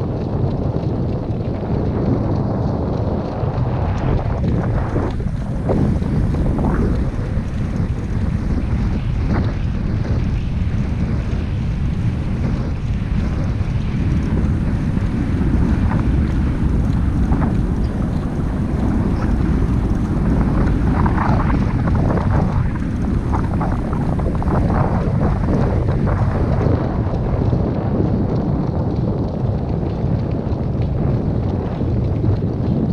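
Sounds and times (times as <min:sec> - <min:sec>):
wind buffeting microphone: 0:00.0 - 0:32.9.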